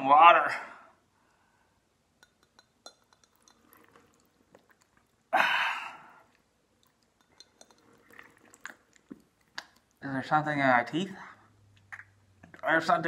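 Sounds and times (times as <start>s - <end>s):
wet clicks and slurps: 2.8s - 5.3s, 6.0s - 10.2s, 11.7s - 12.7s
water spluttering from mouth: 3.4s - 10.1s.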